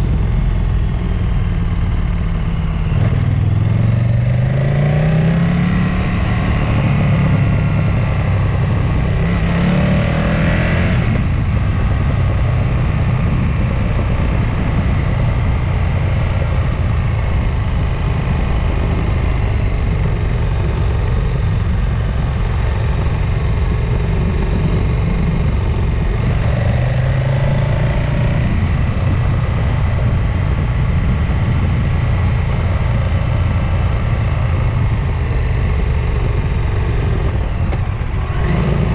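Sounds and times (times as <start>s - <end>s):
wind and road noise: 0.0s - 38.9s
engine revving: 2.8s - 11.5s, 22.8s - 38.9s.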